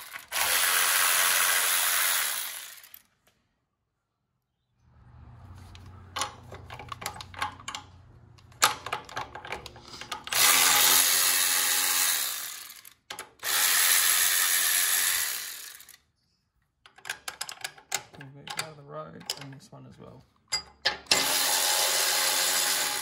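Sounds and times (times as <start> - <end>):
cordless power tool spinning: 0.0 - 3.2, 9.9 - 16.0, 21.1 - 23.0.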